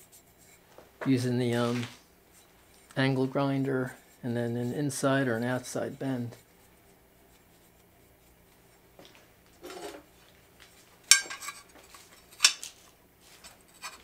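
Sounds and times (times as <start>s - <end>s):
handling rustle: 0.0s - 14.0s
metal pieces knocking together: 11.1s - 11.6s.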